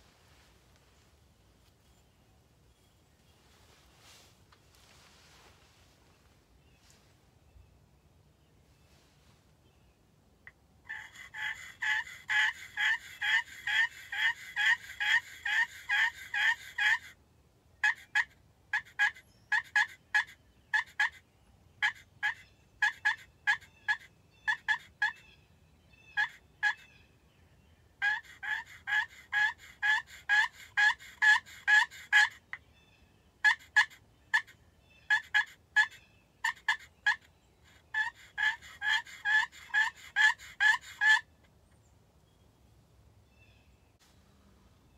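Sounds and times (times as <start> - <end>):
friction turkey call yelps: 10.9 - 17.2, 17.8 - 21.2, 21.8 - 25.4, 26.0 - 27.0, 28.0 - 41.4.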